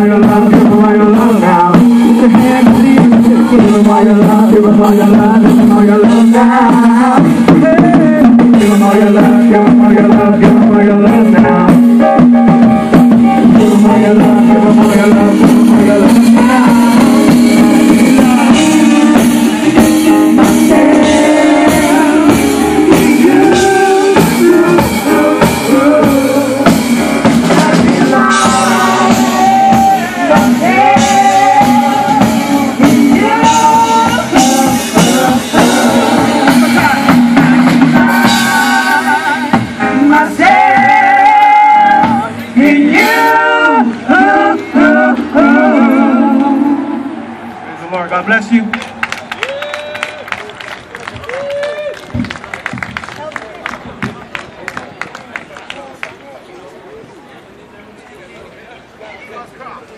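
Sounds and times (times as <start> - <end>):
person singing: 0.0 - 47.3
band playing with drum kit: 0.0 - 55.1.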